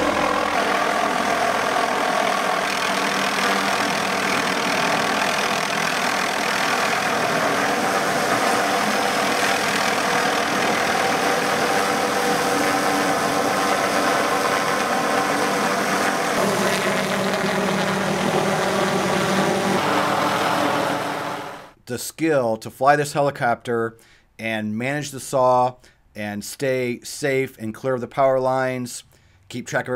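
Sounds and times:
helicopter engine and rotor drone: 0.0s - 21.8s.

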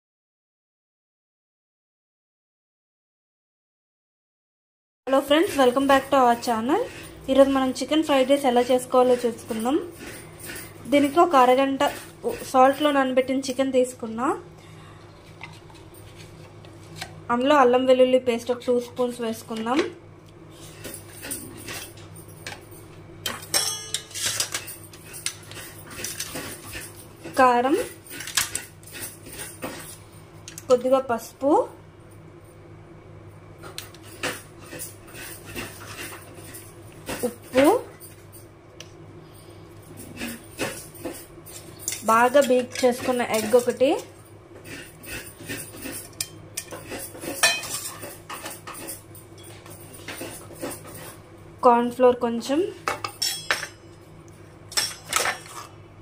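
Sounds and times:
metal utensils clinking: 20.7s - 31.0s, 33.8s - 38.4s, 39.9s - 51.2s, 52.8s - 54.0s, 54.7s - 55.8s
spoon clinking against bowl and pan: 23.3s - 25.5s, 46.0s - 49.8s, 52.8s - 54.0s.

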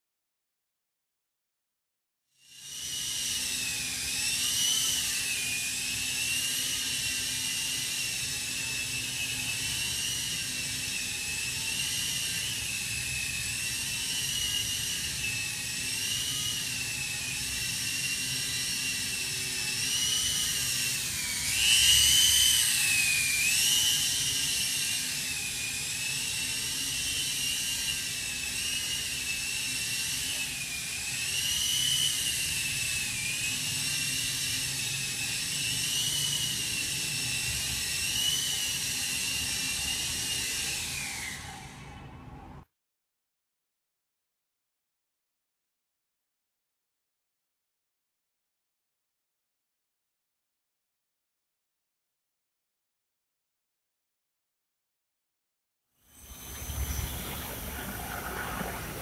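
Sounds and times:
toy helicopter motor whining: 2.3s - 42.2s, 56.0s - 59.0s.

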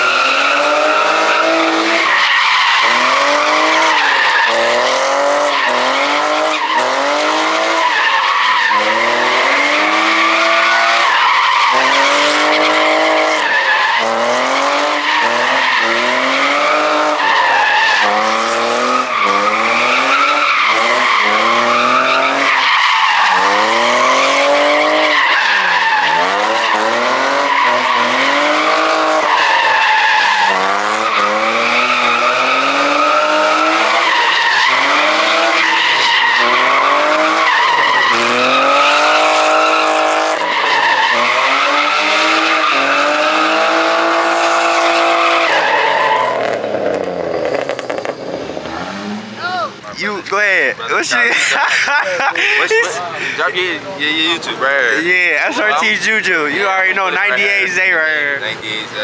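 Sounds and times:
car engine revving: 0.0s - 59.0s
tyre squeal: 18.8s - 43.5s.

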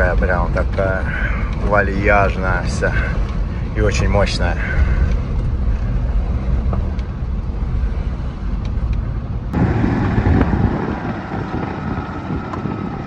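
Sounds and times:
engine and road rumble in cabin: 0.0s - 13.0s
vehicle rushing over concrete road: 8.6s - 13.0s.

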